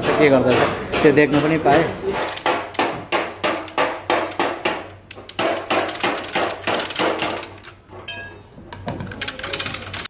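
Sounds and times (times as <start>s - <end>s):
chain hoist ratchet clicking: 9.1s - 10.0s.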